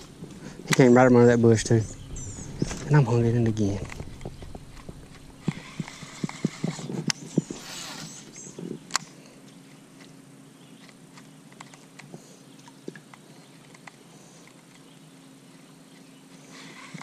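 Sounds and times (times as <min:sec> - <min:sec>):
short rush of noise: 0:00.0 - 0:06.6.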